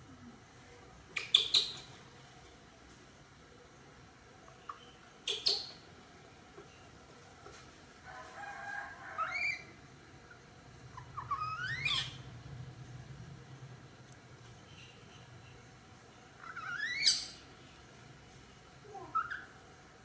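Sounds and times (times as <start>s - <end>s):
baby monkey squealing: 11.0s - 12.3s, 16.4s - 17.4s, 19.0s - 19.6s.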